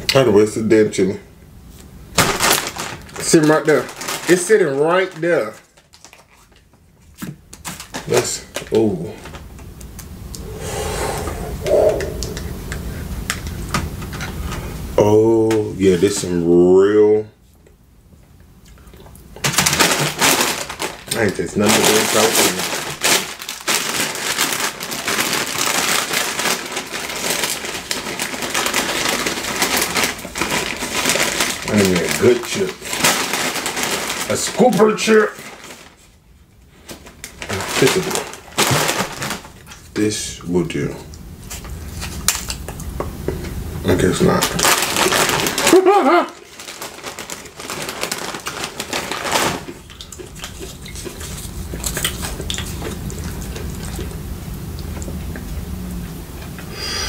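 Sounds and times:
crunching tortilla chips: 2.2 - 9.6, 18.7 - 40.0, 41.4 - 43.0, 43.9 - 55.6.

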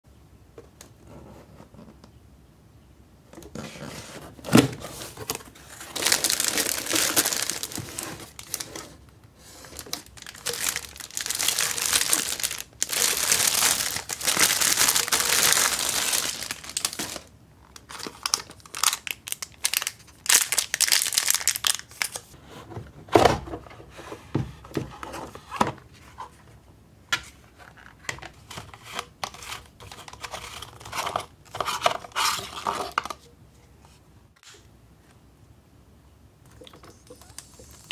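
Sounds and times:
plastic wrapping crinkling: 5.2 - 9.0, 9.6 - 22.4.

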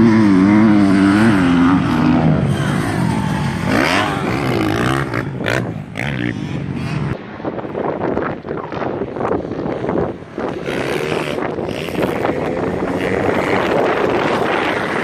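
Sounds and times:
dirt bike engine revving: 0.0 - 7.2, 10.4 - 15.0
wind buffeting microphone: 0.0 - 15.0.

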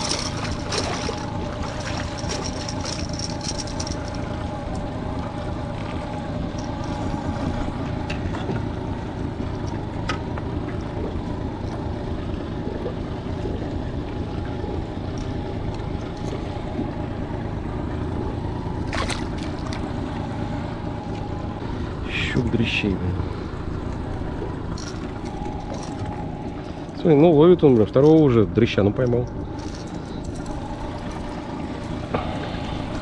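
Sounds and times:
fish splashing into water: 0.0 - 4.8, 18.7 - 20.4
outboard motor running: 0.0 - 33.0
water washing along hull: 0.0 - 33.0.

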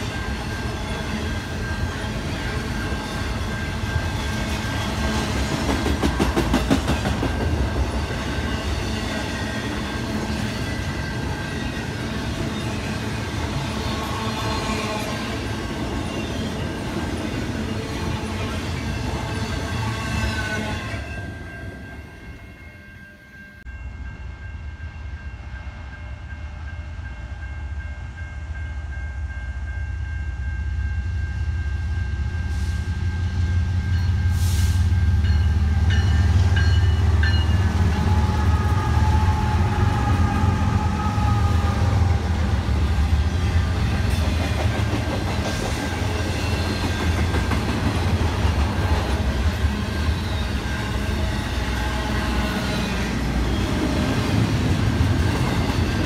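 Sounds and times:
freight train horn: 12.4 - 15.7, 17.4 - 21.5, 31.8 - 44.0, 48.6 - 54.2.

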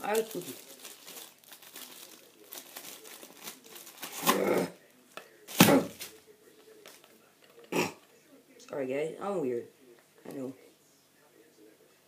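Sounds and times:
plastic packaging crinkling: 0.0 - 4.5.

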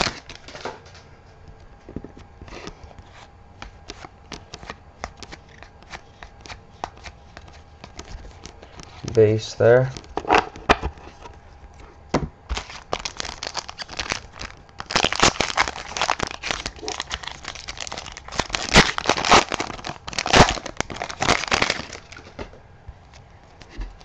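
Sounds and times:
wrapper tearing and crinkling: 0.0 - 0.7, 12.5 - 22.4.

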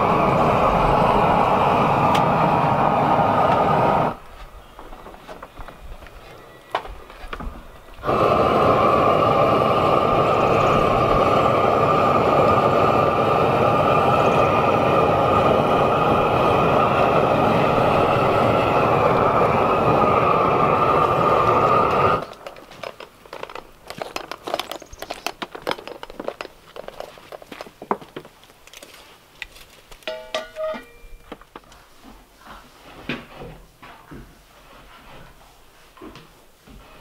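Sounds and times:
propane torch rushing: 0.0 - 27.8.

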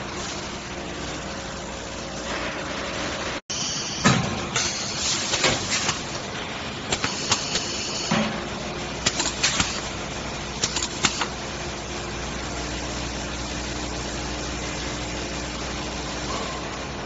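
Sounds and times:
pneumatic cylinders clacking: 3.6 - 6.2, 6.9 - 8.4, 9.0 - 9.9, 10.6 - 11.4.

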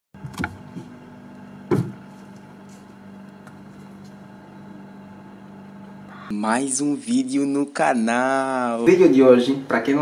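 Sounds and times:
refrigerator hum: 0.2 - 10.0
light knocks on refrigerator door: 1.7 - 2.0
refrigerator door thud: 1.7 - 2.0.

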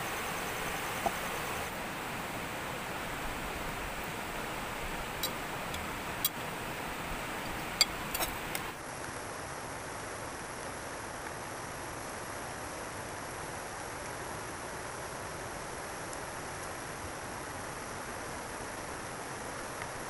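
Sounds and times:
water rushing: 0.0 - 8.8.

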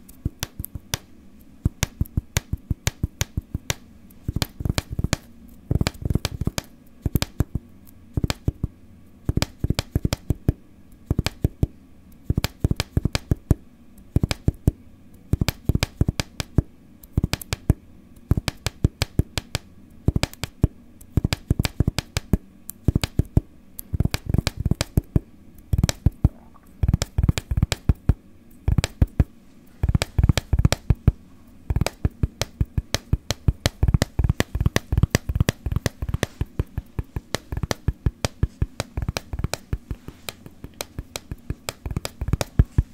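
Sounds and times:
rhythmic sharp tapping: 15.4 - 42.9.

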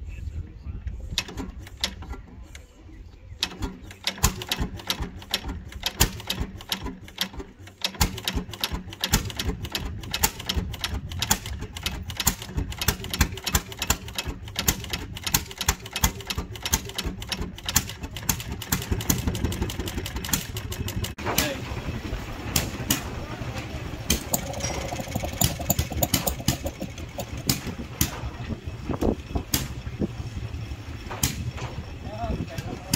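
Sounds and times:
stationary engine exhaust pops: 3.4 - 21.2, 22.5 - 23.2, 24.1 - 30.2, 31.0 - 31.9.

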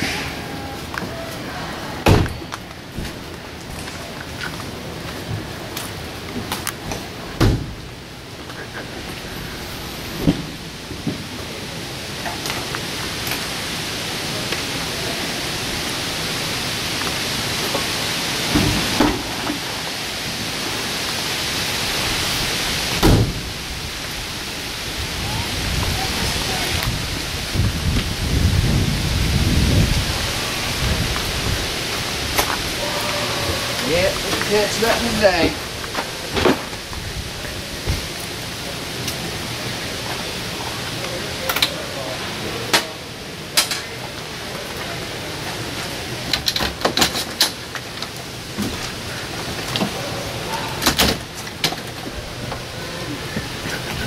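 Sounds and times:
rushing hiss: 8.5 - 41.1.

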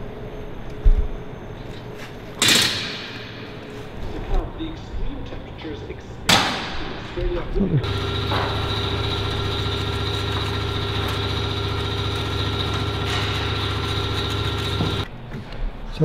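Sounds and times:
power tool hum and whine: 7.8 - 15.1.

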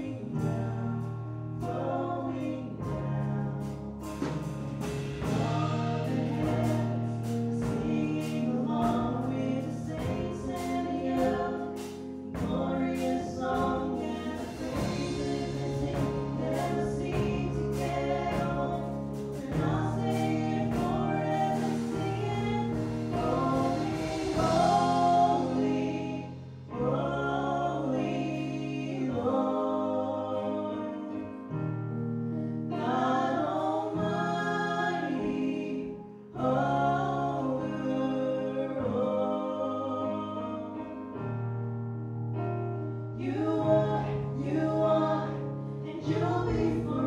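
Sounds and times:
woman singing: 5.2 - 31.3, 43.2 - 47.0.

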